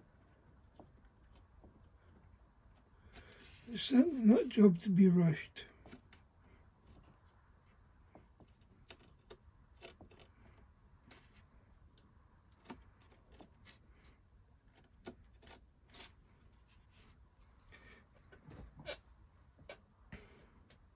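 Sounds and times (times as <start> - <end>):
craft knife cutting wood: 8.1 - 11.4, 12.5 - 13.9, 14.6 - 16.9.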